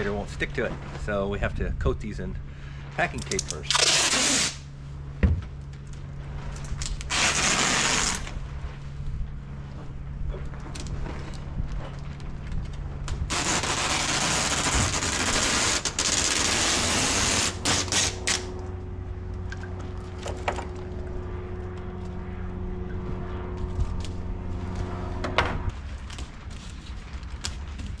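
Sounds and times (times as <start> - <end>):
steady low hum: 0.0 - 28.0
packing tape ripping: 3.3 - 4.6, 6.8 - 8.3, 13.3 - 18.5.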